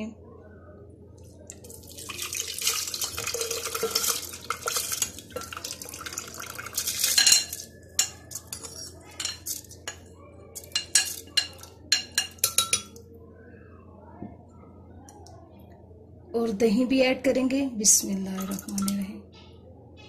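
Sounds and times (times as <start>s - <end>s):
rice and water pouring: 1.5s - 7.8s
glass bowl clinking on jug: 3.2s - 8.6s, 10.7s - 13.0s, 18.4s - 19.1s.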